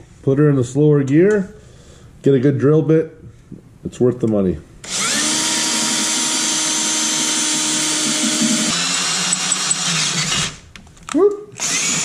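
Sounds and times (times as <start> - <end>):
cordless drill boring through metal: 4.8 - 10.6, 11.6 - 12.0.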